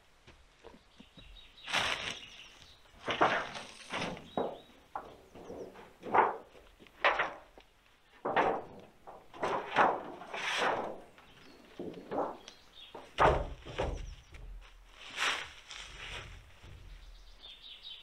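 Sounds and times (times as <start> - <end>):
sheets rustling and scraping: 1.6 - 7.6, 9.4 - 17.3
dull thump: 13.0 - 14.6.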